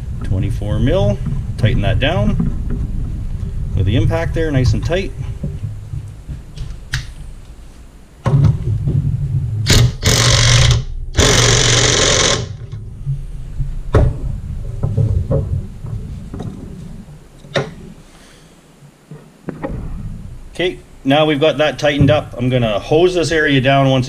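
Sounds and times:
impact gun hammering: 9.7s - 12.5s.

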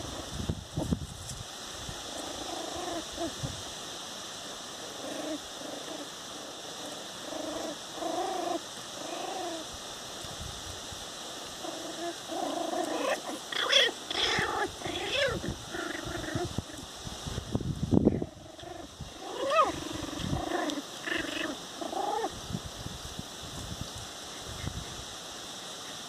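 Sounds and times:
puppies squealing: 11.6s - 16.6s
puppies whining and grunting: 11.6s - 16.8s.

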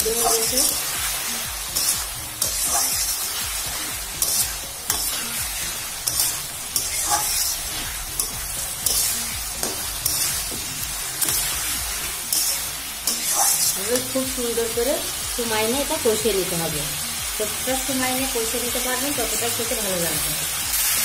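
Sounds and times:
metal spatula scraping a wok: 0.0s - 14.2s
food sizzling in oil: 0.0s - 21.0s.

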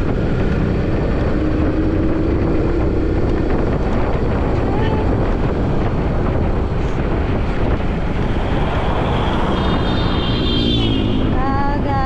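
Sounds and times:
motorcycle engine rumble: 0.0s - 12.0s
wind buffeting microphone: 0.0s - 12.0s.

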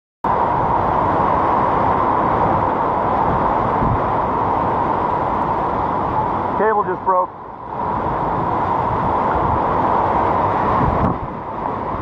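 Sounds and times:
hurricane wind: 0.2s - 12.0s
heavy rain: 0.3s - 12.0s
wind buffeting microphone: 0.3s - 12.0s.

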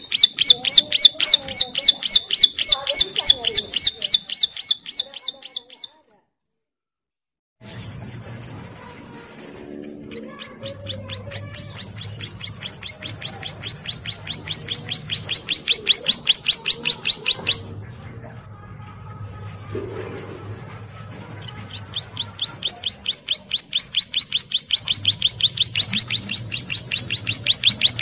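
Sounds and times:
bird singing sharp high notes: 0.0s - 5.9s, 21.7s - 28.0s.

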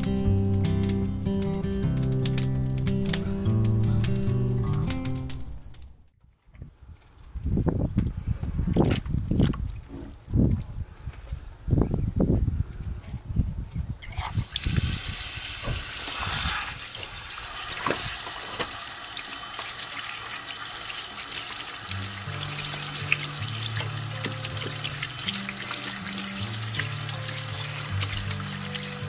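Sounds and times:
background music: 0.0s - 5.7s, 21.9s - 29.0s
tap water running and splashing: 14.1s - 29.0s.

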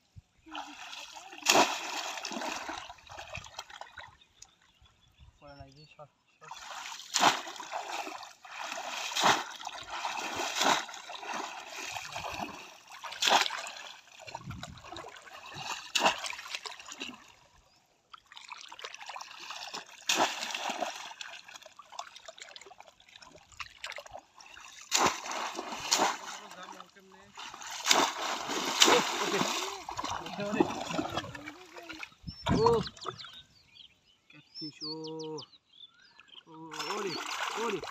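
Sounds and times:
wading through water: 0.5s - 5.0s, 6.4s - 33.8s, 36.1s - 37.9s
basket splashing into water: 0.8s - 3.8s, 6.6s - 13.9s, 15.0s - 17.2s, 18.4s - 22.1s, 24.8s - 26.6s, 27.4s - 32.1s, 36.8s - 37.9s.

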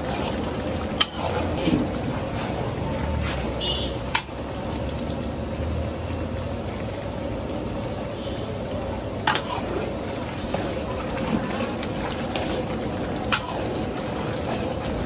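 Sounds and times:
metal spatula stirring pot: 0.0s - 3.6s, 9.2s - 15.0s
curry sizzling and bubbling: 0.0s - 15.0s.

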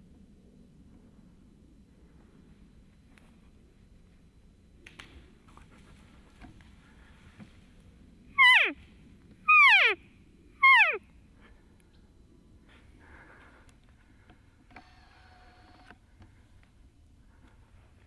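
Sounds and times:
faint steady pitched elk call: 8.3s - 8.8s, 9.5s - 10.0s, 10.6s - 12.0s.

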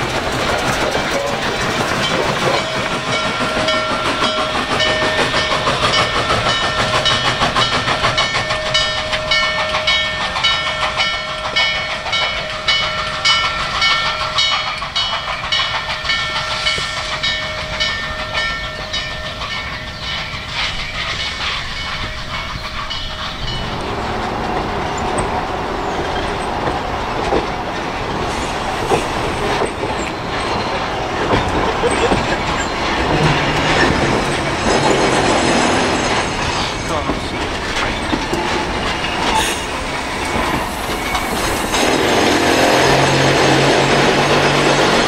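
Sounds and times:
steam locomotive exhaust beats: 0.0s - 45.0s
train cars rumbling and clattering: 0.0s - 45.0s.

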